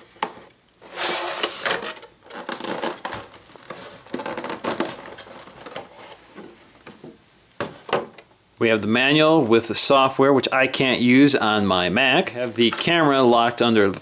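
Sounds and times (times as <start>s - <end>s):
plastic tray and cardboard crinkling: 0.2s - 9.6s, 11.5s - 14.0s
long loud scrape: 0.8s - 1.8s.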